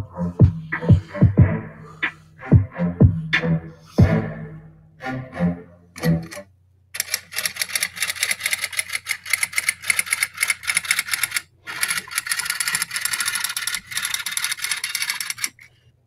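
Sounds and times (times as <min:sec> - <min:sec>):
typewriter keys clacking: 0:07.0 - 0:15.7.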